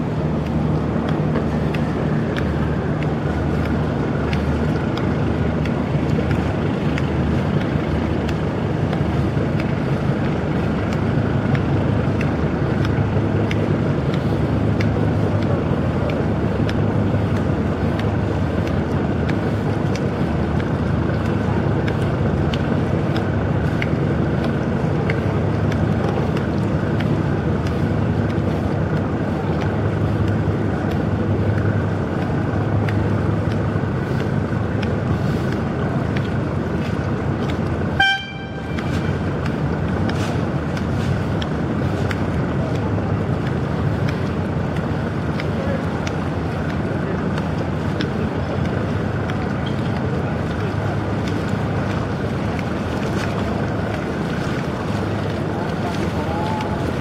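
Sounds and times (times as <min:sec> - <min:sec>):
boat diesel engine droning: 0:00.0 - 0:57.0
ship horn toot: 0:37.9 - 0:39.4.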